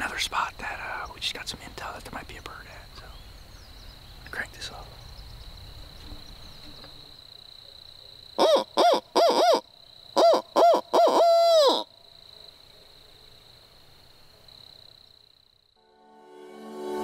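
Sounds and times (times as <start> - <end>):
owl call hooting: 8.4 - 11.9.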